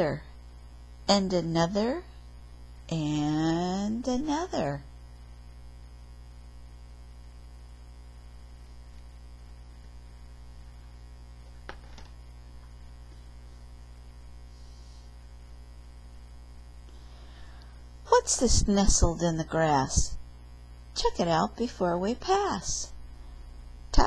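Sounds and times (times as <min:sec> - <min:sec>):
electrical mains hum: 0:00.0 - 0:24.0
page turning click: 0:11.6 - 0:12.2.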